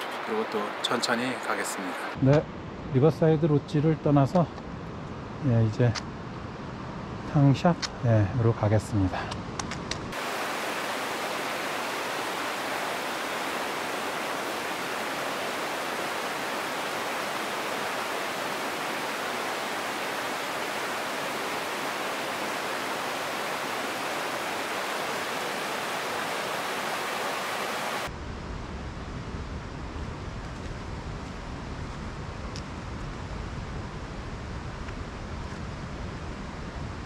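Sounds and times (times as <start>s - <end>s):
river rushing over rocks: 10.1s - 28.1s.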